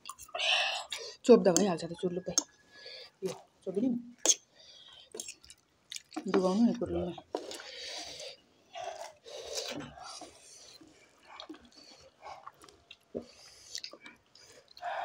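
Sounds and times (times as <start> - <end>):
chewing mouth sounds: 4.2 - 6.4, 7.2 - 15.0
people slurping noodles: 7.3 - 15.0.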